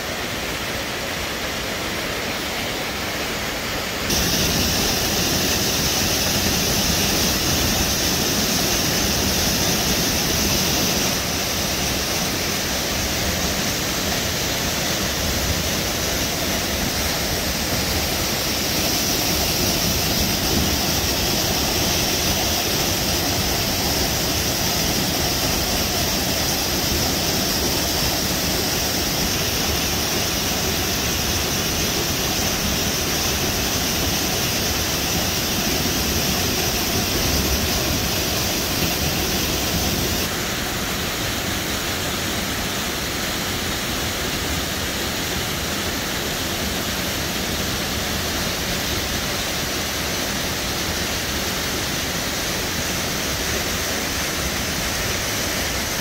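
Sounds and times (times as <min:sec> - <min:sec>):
waterfall crashing into pool: 0:00.0 - 0:56.0.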